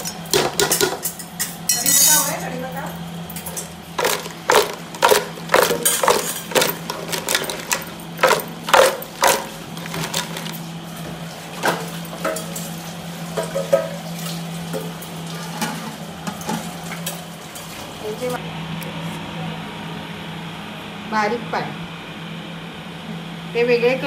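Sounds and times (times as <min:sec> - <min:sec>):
crab shells knocking against pot: 0:04.0 - 0:10.6.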